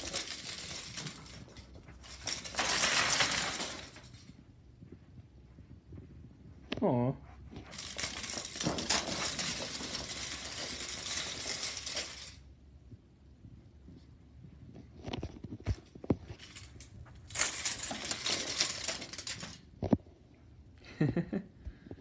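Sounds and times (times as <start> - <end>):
wooden sticks clattering onto carpet: 0.0 - 4.4, 7.6 - 12.4, 15.1 - 20.0.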